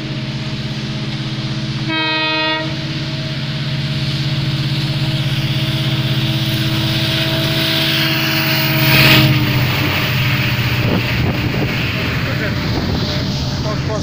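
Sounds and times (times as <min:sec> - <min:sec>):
diesel locomotive engine droning: 0:00.0 - 0:14.0
rumble of train wagons: 0:00.0 - 0:14.0
exhaust and cooling fan rush: 0:10.6 - 0:14.0.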